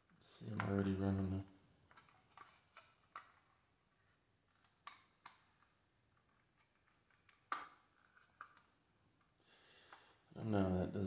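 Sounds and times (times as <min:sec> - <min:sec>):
faint clicks of small parts: 0:01.8 - 0:10.2.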